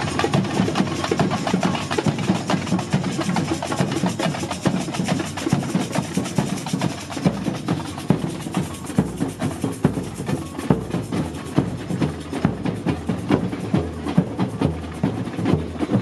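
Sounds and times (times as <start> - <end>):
samba percussion band drumming: 0.0 - 16.0.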